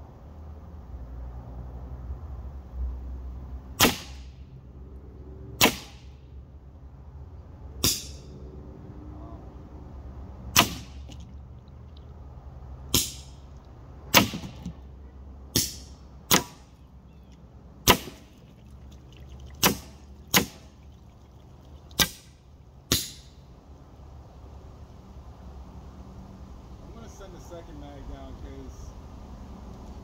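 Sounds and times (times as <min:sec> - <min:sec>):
air pistol shots cracking: 0:03.8 - 0:04.4, 0:05.6 - 0:06.2, 0:07.8 - 0:08.3, 0:10.5 - 0:11.2, 0:12.9 - 0:13.4, 0:14.1 - 0:14.7, 0:15.5 - 0:16.7, 0:17.8 - 0:18.3, 0:19.6 - 0:20.7, 0:22.0 - 0:23.4.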